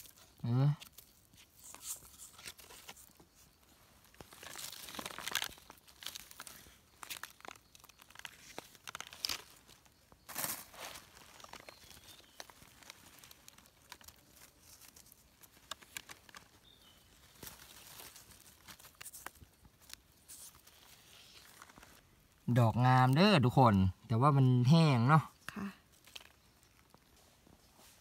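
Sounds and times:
dry leaves crinkling: 0.0 - 23.5, 25.6 - 28.0
knife scraping mushroom stem: 0.8 - 3.1.

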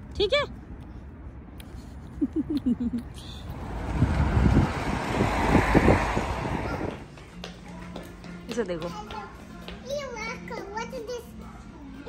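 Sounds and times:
wind rumbling on microphone: 3.1 - 7.1
car passing by: 3.4 - 7.2.

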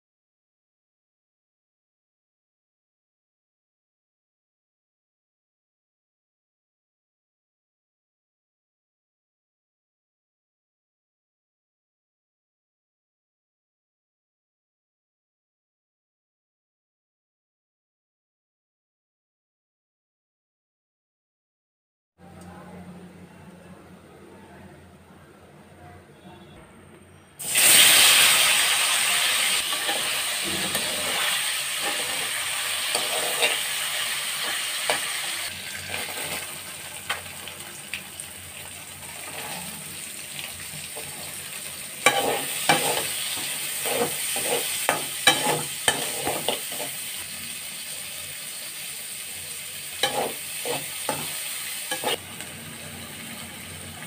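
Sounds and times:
onions sizzling in hot oil: 27.4 - 54.0
spatula scraping a pan: 29.3 - 36.6, 39.0 - 40.0, 40.7 - 47.2, 50.0 - 52.4.

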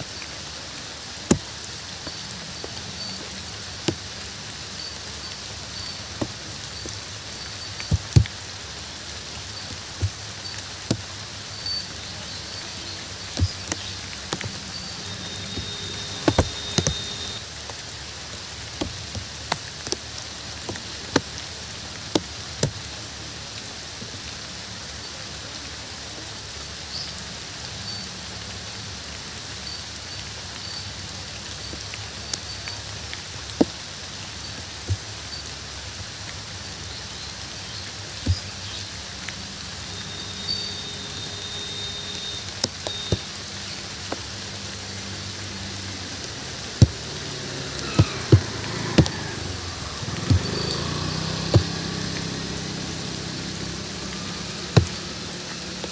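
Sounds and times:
steady rain falling: 0.0 - 55.9
large drops tapping: 5.8 - 8.5, 9.6 - 11.8, 12.5 - 17.4.

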